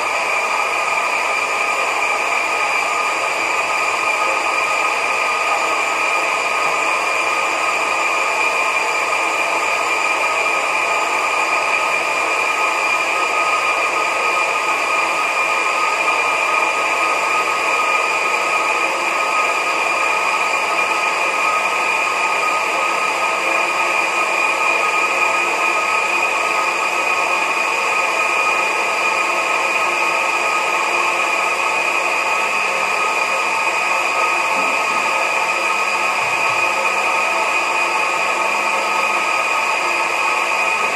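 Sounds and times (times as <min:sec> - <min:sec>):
blender motor whine: 0:00.0 - 0:40.9.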